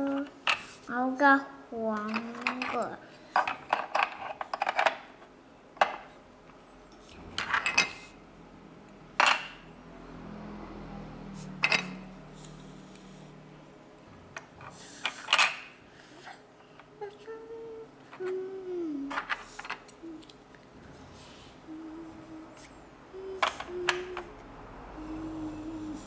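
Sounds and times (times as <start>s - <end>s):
plastic toy cars clacking: 19.1s - 20.3s, 23.4s - 24.3s.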